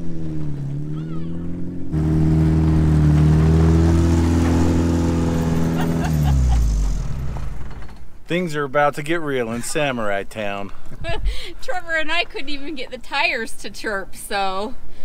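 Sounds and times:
car engine droning under throttle: 0.0 - 8.0.

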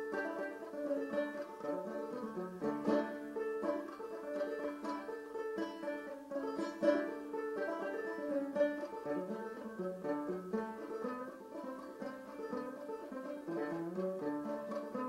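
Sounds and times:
solo banjo playing: 0.0 - 15.0.

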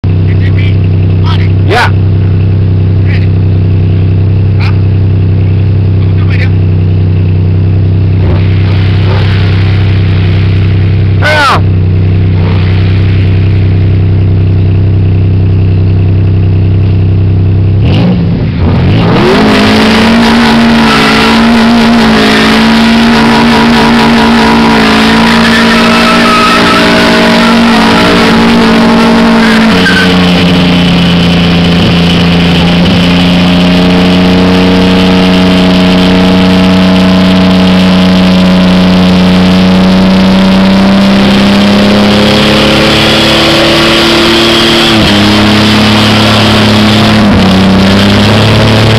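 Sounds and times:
car engine revving: 0.0 - 48.9
tyres spinning on asphalt: 18.6 - 36.6.

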